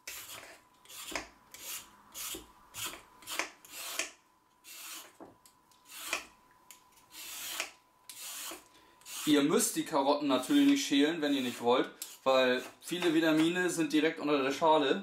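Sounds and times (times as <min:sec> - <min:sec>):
vegetable peeler scraping carrots: 0:00.0 - 0:05.2, 0:07.1 - 0:09.5, 0:10.4 - 0:13.5.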